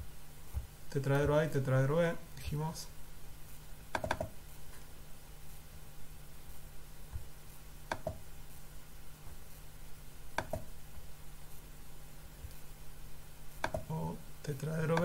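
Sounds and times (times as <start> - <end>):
low steady hum: 0.0 - 15.0
computer mouse clicks: 3.9 - 4.4, 7.9 - 8.2, 10.4 - 10.7, 13.6 - 13.9.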